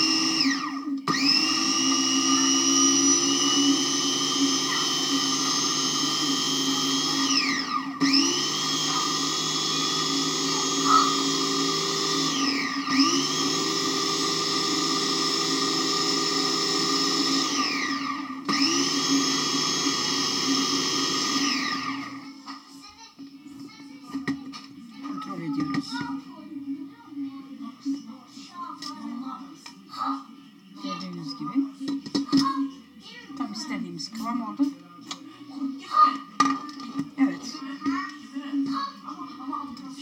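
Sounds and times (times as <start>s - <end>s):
food chopper motor whine: 0.0s - 22.6s.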